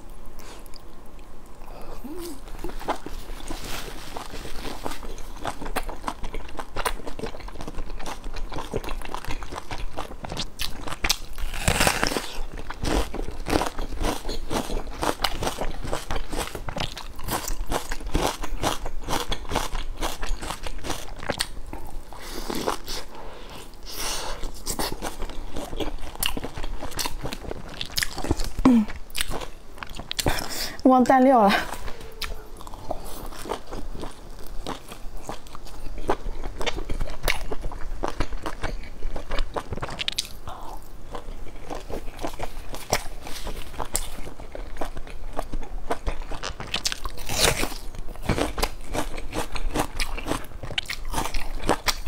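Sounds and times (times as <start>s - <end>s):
person chewing and biting: 0.4s - 30.7s, 31.7s - 52.0s.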